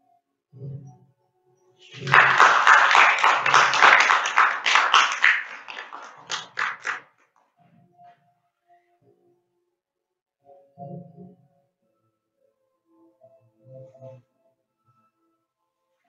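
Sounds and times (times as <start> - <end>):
audience applauding: 1.9 - 7.0.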